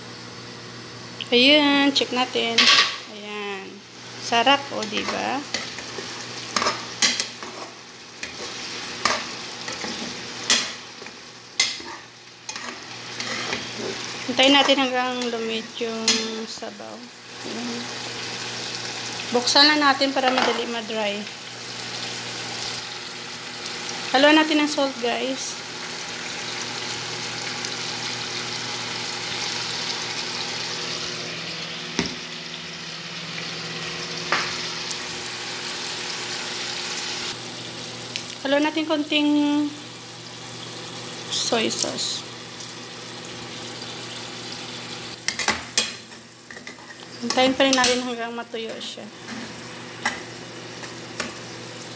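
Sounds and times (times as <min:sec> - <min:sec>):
mushrooms sizzling in a frying pan: 0:00.1 - 0:51.9
tongs scraping a pan: 0:04.7 - 0:16.6.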